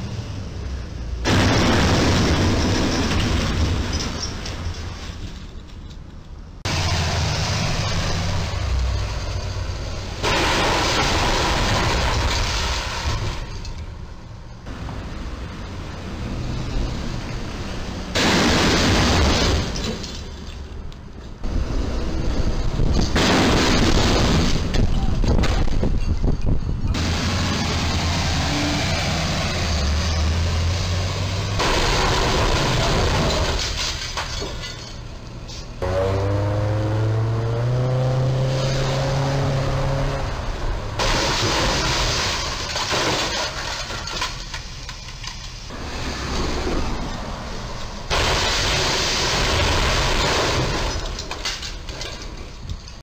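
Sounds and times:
trucks driving in traffic: 0:00.0 - 0:53.0
loud crash and metal scraping: 0:01.2 - 0:06.0, 0:06.6 - 0:13.9, 0:18.1 - 0:20.6, 0:21.8 - 0:26.3, 0:26.9 - 0:35.8, 0:40.5 - 0:53.0.

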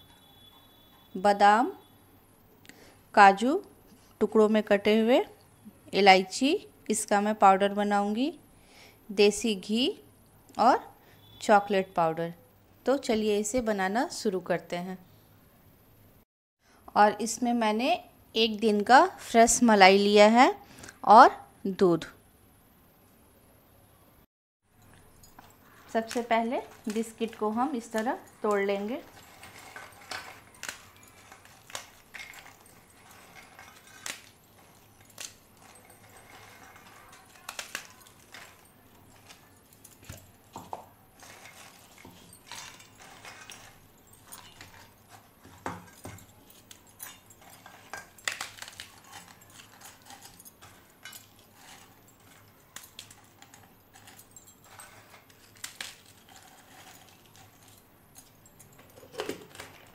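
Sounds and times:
pieces clinking in steel bowl: 0:25.3 - 0:59.9.

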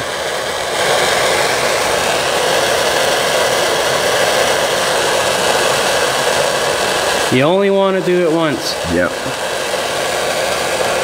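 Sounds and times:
gas torch flame hissing: 0:00.0 - 0:11.0.

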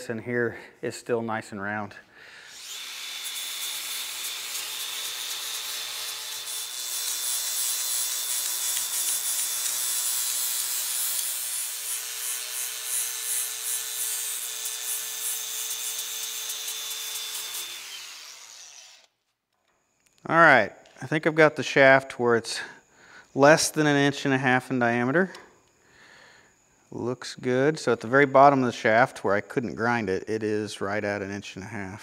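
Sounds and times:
angle grinder grinding steel: 0:02.5 - 0:19.1.

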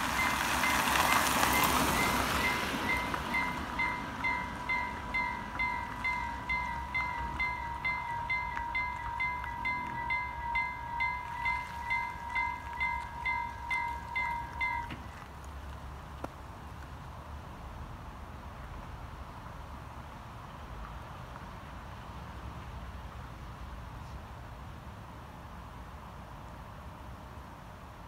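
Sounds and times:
level crossing bells ringing: 0:00.0 - 0:15.0.

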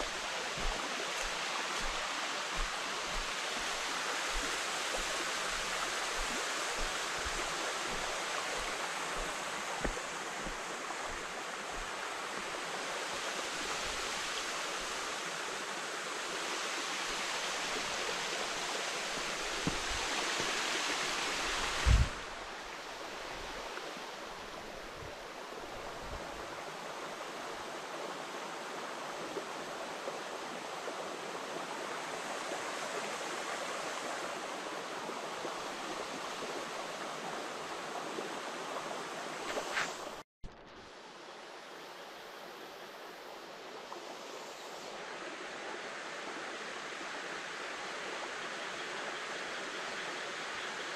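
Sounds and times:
stream babbling over stones: 0:00.0 - 0:40.2.

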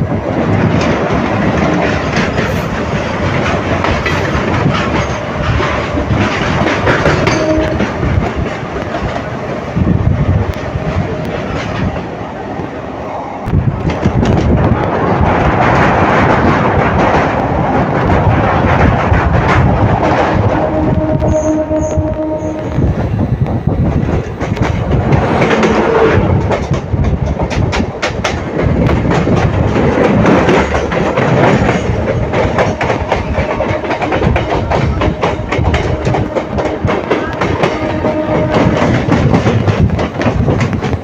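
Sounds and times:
train wheels clattering over rail joints: 0:00.0 - 0:12.2, 0:13.5 - 0:22.1, 0:22.8 - 0:41.0
freight train passing: 0:00.0 - 0:41.0
rush of wind: 0:00.0 - 0:41.0.

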